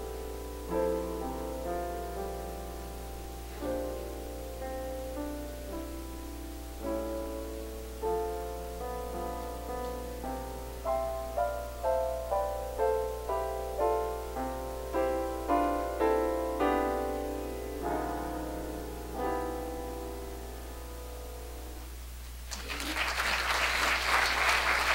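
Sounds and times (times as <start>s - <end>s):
upright piano chords: 0.0s - 22.5s
applause: 22.5s - 24.9s.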